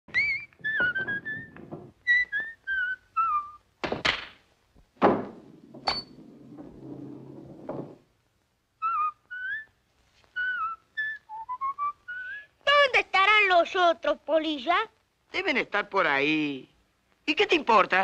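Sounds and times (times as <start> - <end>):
person whistling: 0.1 - 3.6, 10.4 - 12.5
balls rolling on table: 0.5 - 2.6, 5.0 - 8.1
pool balls striking: 5.0 - 8.0.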